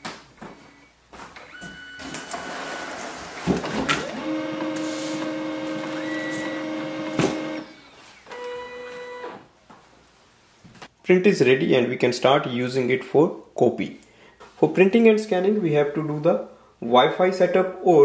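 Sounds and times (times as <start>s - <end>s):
printer motors whirring: 1.5s - 9.4s
printer steady hum: 2.0s - 9.3s.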